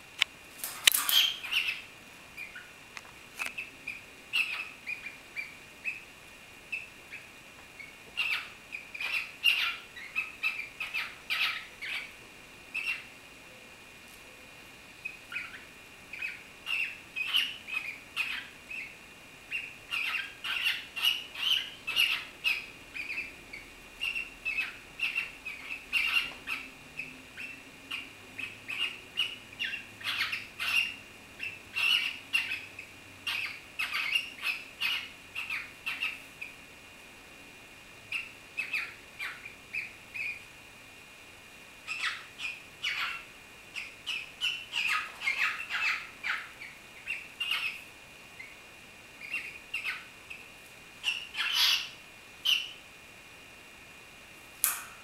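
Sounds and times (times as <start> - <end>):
birds giving rasping squawky chirps: 0.8 - 2.8, 3.5 - 6.1, 6.7 - 13.1, 15.0 - 36.6, 41.9 - 47.8, 49.2 - 50.4, 51.0 - 52.8.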